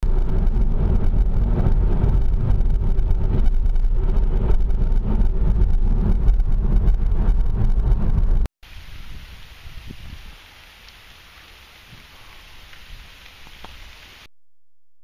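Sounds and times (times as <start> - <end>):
car road and wind noise: 0.0 - 10.4.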